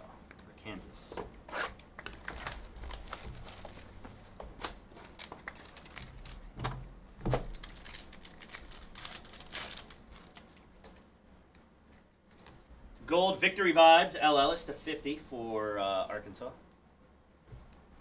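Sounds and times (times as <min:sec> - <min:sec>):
foil pack crinkling: 0:01.7 - 0:11.0.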